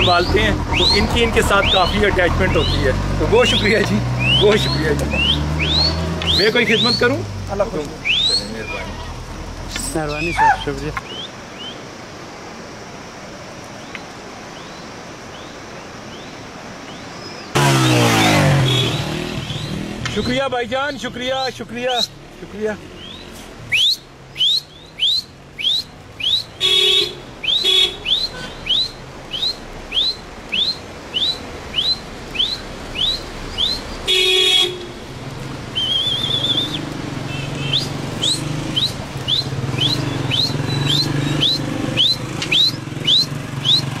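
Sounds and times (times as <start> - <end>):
vehicle horn honking: 17.6 - 19.2, 26.6 - 28.6, 34.0 - 35.1, 37.2 - 37.9
low engine hum: 28.0 - 44.0
person whistling rising notes: 35.7 - 36.9, 37.7 - 43.9.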